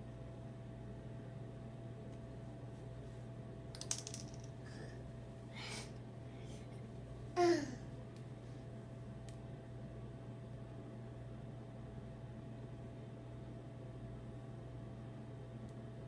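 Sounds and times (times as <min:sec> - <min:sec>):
steady low hum: 0:00.0 - 0:16.0
plastic piece dropping on tile: 0:03.8 - 0:04.5
toddler vocal sound: 0:07.4 - 0:07.8.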